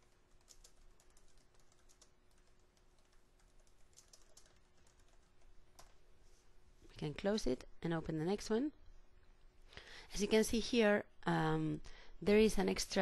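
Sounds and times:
faint keyboard typing: 0:00.0 - 0:06.0.

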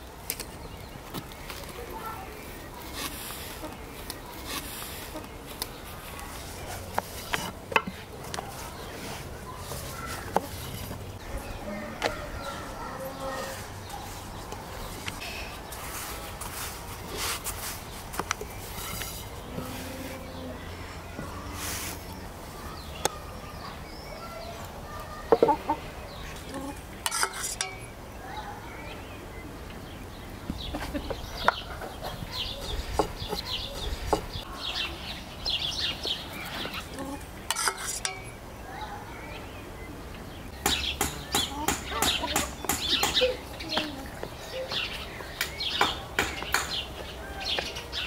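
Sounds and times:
small birds chirping: 0:00.0 - 0:48.0
hen clucking: 0:02.8 - 0:05.4, 0:25.3 - 0:27.2, 0:40.9 - 0:44.0.

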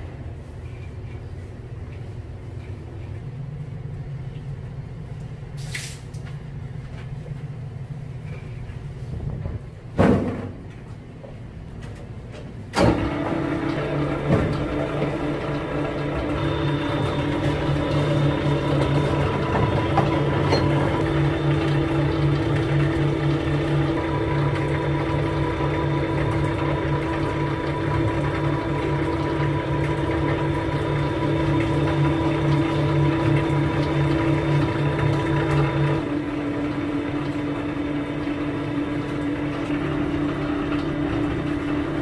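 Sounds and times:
machine starting clunk: 0:12.7 - 0:29.2
machine humming: 0:12.7 - 0:42.0.

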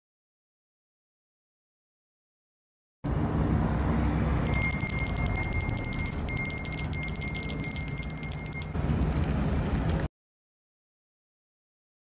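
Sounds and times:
high rapid bell ringing: 0:04.5 - 0:08.8.

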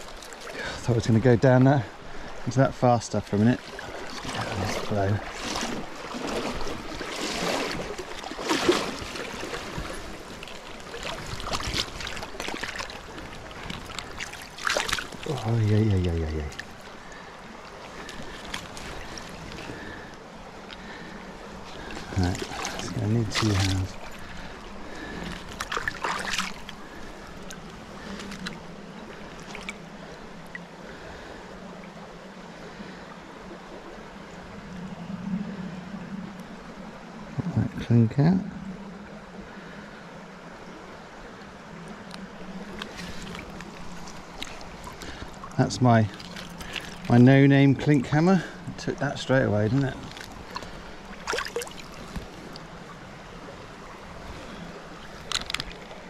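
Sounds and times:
water sloshing and splashing: 0:00.0 - 0:37.3, 0:38.6 - 0:56.0.

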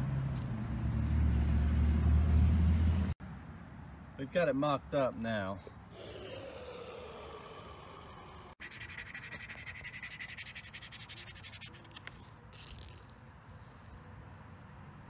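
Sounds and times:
plastic card rubbing on tape: 0:08.6 - 0:13.1.

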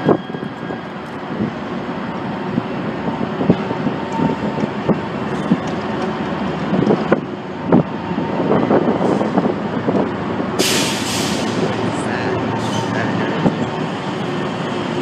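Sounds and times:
locomotives rumbling over bridge: 0:00.0 - 0:15.0
wheels knocking and clanking: 0:03.5 - 0:07.3
burst of hiss: 0:10.6 - 0:11.6.

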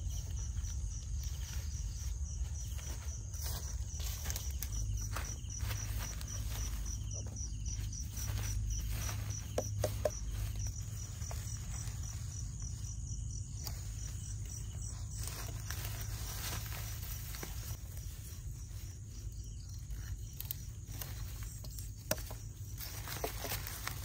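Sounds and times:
insect chirping: 0:00.0 - 0:24.0.

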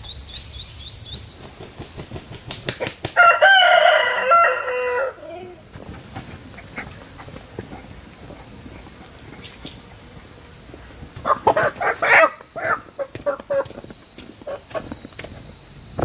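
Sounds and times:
chickens clucking: 0:10.8 - 0:13.8, 0:14.4 - 0:15.0.

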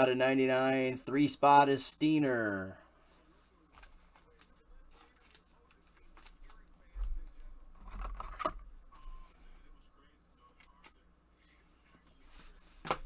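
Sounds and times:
card and plastic rustling: 0:03.7 - 0:09.3.

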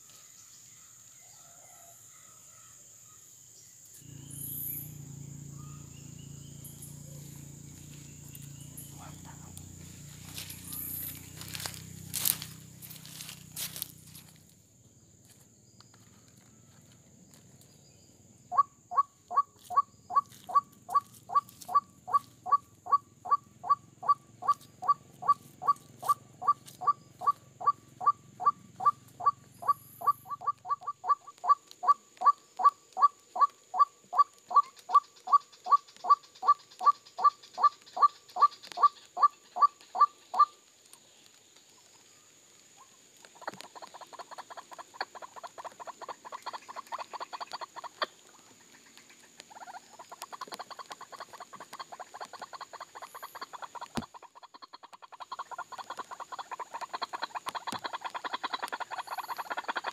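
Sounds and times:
waterhen calling: 0:18.5 - 0:40.6, 0:49.4 - 0:59.9.

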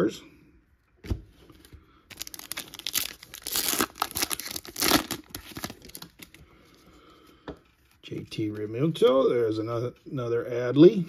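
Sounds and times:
wrapper tearing and crinkling: 0:02.1 - 0:06.4.

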